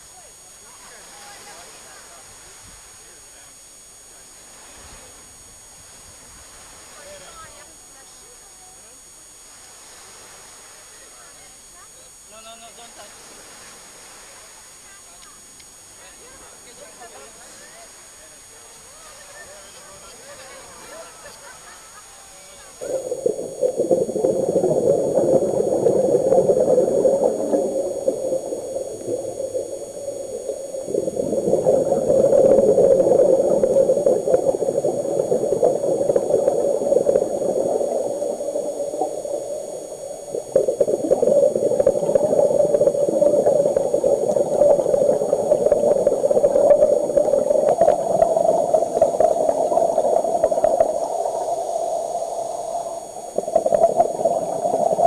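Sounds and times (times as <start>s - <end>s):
faint crackles: 22.3s - 55.0s
underwater bubbling: 22.4s - 55.0s.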